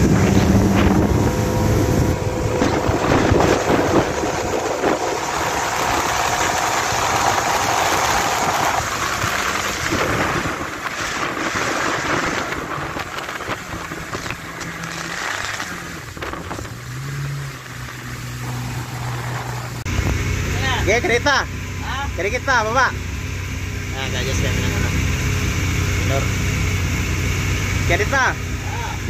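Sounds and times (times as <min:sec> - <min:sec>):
rush of wind and water: 0:00.0 - 0:20.4
boat engines humming: 0:00.0 - 0:29.0
steady whine: 0:00.0 - 0:29.0.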